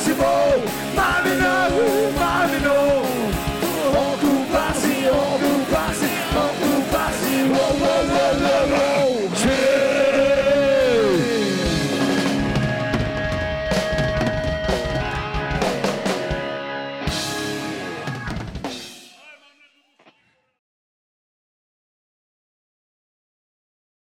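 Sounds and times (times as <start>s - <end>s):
drum hits and cymbal crashes: 0.0s - 9.8s, 17.1s - 19.4s
sustained guitar chords: 0.0s - 18.6s
live rock band playing: 0.0s - 19.4s.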